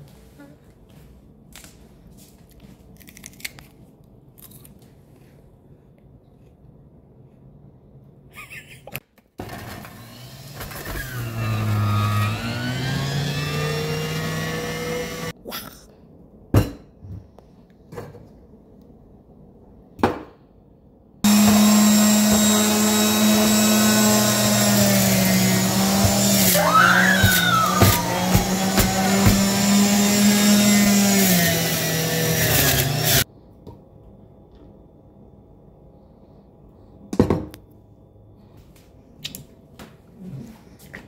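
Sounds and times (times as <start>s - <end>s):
juicer motor whining: 9.4s - 15.3s, 21.3s - 33.2s.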